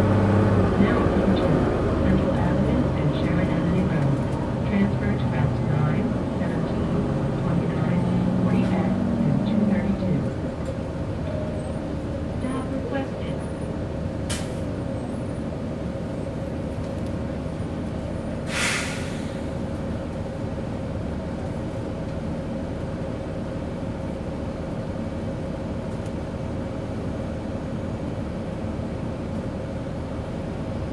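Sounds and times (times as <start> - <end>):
bus diesel engine running: 0.0 - 30.9
engine whine: 0.0 - 30.9
air brake hiss: 18.4 - 19.5.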